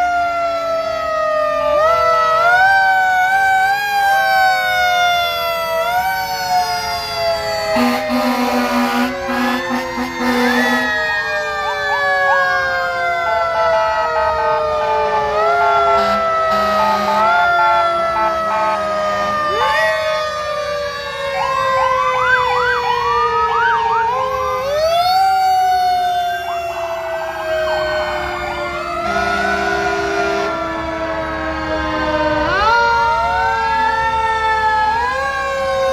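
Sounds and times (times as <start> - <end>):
fire engine sirens wailing: 0.0 - 35.9.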